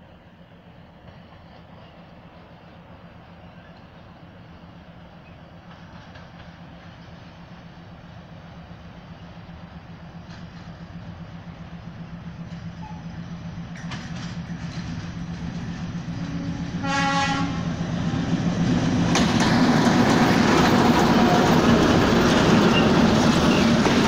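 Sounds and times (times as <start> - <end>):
diesel locomotive engine drone: 0.0 - 24.0
train wheel noise: 0.0 - 24.0
train horn blast: 16.2 - 17.8.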